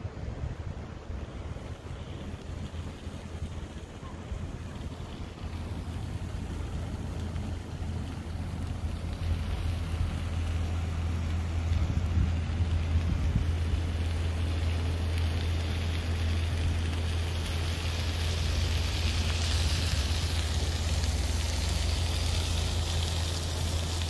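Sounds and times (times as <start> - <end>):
low rumble: 0.0 - 24.0
food sizzling in wok: 4.9 - 24.0.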